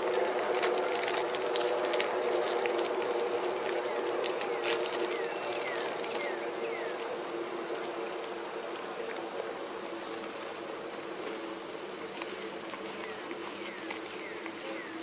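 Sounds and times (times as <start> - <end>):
engine hum: 0.0 - 15.0.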